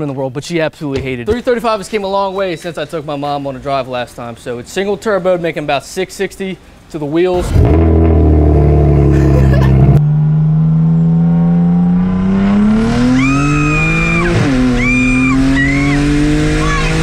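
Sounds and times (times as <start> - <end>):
car engine accelerating: 7.4 - 17.0
short high squeals: 13.2 - 16.9.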